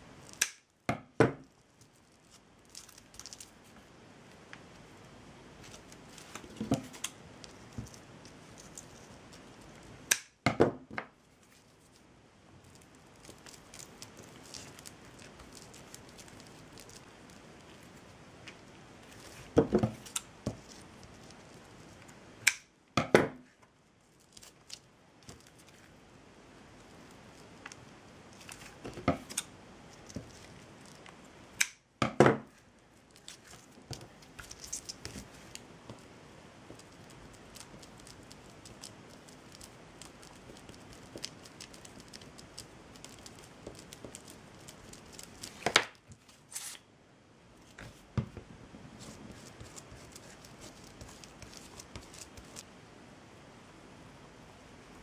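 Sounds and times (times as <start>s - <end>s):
twine snapping: 0.2s - 0.8s, 6.3s - 10.4s, 22.4s - 22.7s, 28.4s - 31.9s
clicks and rustles of twine: 1.4s - 3.8s, 12.6s - 18.5s, 36.7s - 46.8s.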